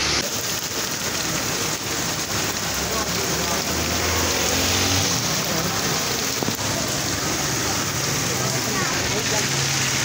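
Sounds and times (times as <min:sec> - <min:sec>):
heavy rain pouring on street: 0:00.0 - 0:10.0.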